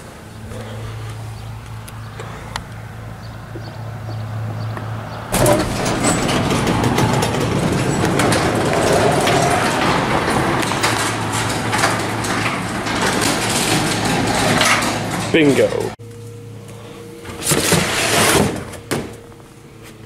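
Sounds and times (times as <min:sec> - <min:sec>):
garage door rattling on metal tracks: 0:05.3 - 0:16.0, 0:17.6 - 0:19.1.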